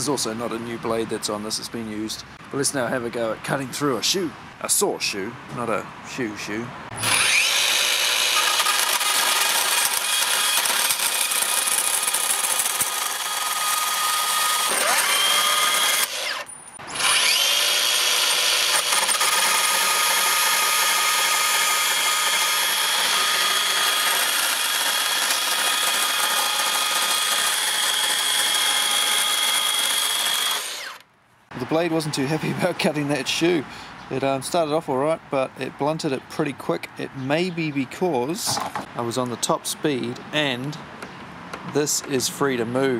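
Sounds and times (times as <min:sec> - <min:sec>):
bandsaw cutting metal: 0:06.9 - 0:31.0.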